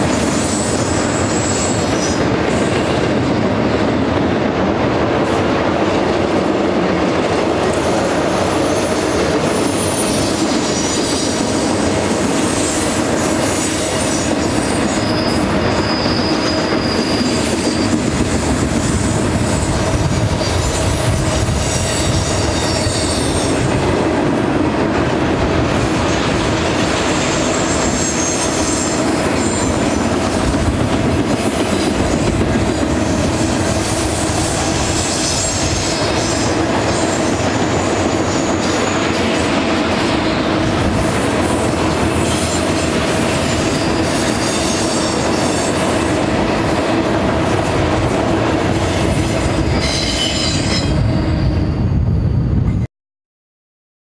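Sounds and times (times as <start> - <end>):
freight train wheels rumbling on rail: 0.0 - 52.9
high-pitched wheel squeal: 0.3 - 2.3, 12.5 - 18.2, 19.6 - 23.7, 27.2 - 29.8, 49.4 - 52.8.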